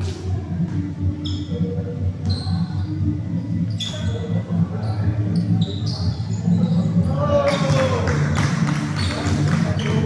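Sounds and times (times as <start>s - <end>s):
short high squeaks: 2.3s - 2.9s, 3.7s - 7.0s.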